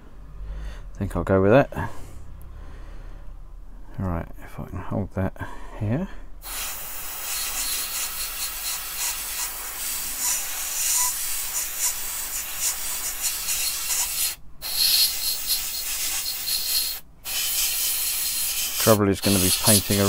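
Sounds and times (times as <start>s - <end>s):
airbrush spraying hiss: 6.4s - 20.0s.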